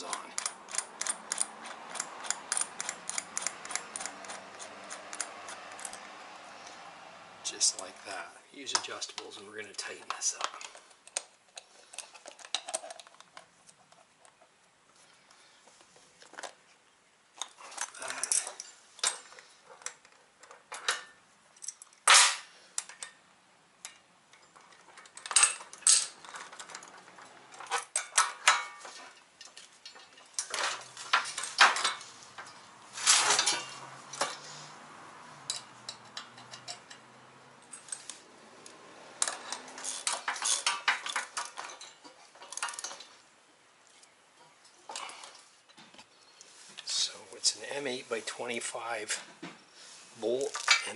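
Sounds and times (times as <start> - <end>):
wrenches clinking on metal: 0.0 - 6.2, 17.4 - 23.2, 24.3 - 34.5, 35.4 - 38.2, 39.2 - 43.2, 50.3 - 50.9.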